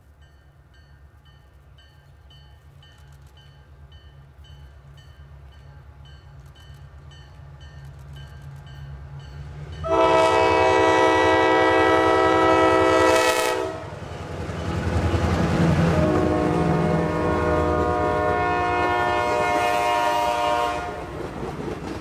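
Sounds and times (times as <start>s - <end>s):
diesel locomotive engines rumbling: 0.0s - 22.0s
train air horn blast: 9.8s - 14.0s, 15.8s - 21.1s.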